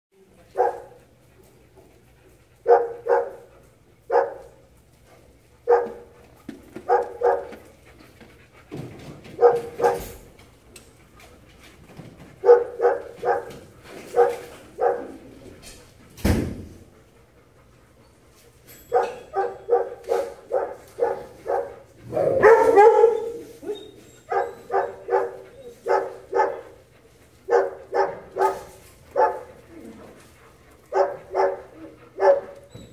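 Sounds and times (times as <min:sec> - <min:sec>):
dogs barking: 0:00.5 - 0:01.2, 0:02.6 - 0:04.8, 0:05.6 - 0:06.2, 0:06.8 - 0:07.6, 0:09.3 - 0:10.3, 0:12.4 - 0:15.5, 0:18.9 - 0:32.9.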